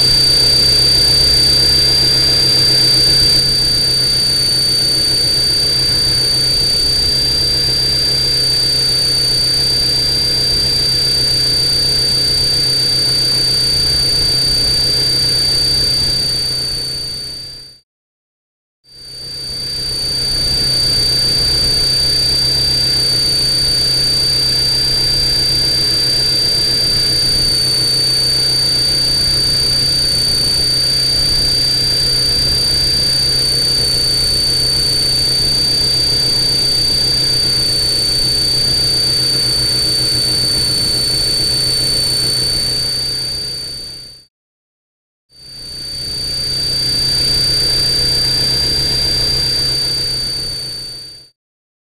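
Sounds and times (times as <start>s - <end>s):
multicopter motors whining: 0.0s - 14.0s, 20.0s - 43.8s.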